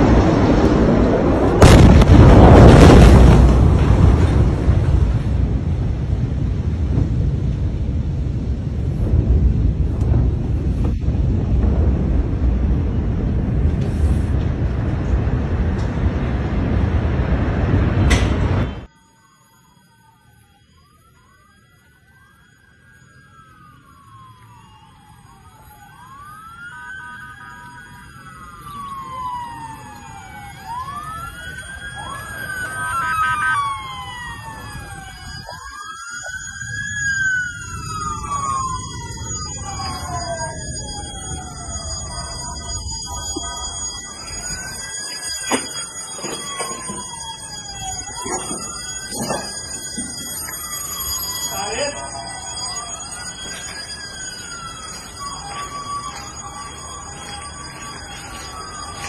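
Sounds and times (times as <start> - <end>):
loud low rumble: 0.0 - 18.9
wind buffeting microphone: 0.0 - 18.9
sirens wailing: 0.0 - 59.0
choppy stepping siren tone: 18.6 - 59.0.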